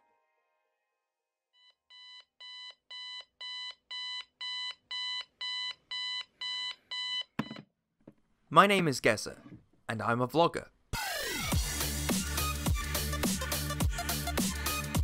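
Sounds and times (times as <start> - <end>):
alarm clock beeping: 1.6 - 7.6.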